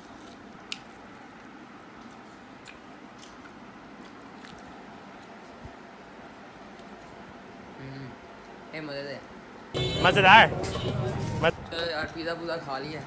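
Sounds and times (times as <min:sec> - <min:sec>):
biting and chewing: 0:00.0 - 0:05.6.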